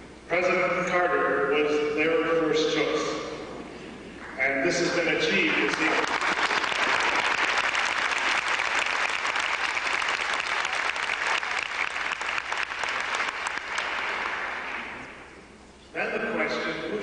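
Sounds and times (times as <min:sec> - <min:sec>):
audience applauding: 0:05.4 - 0:15.2.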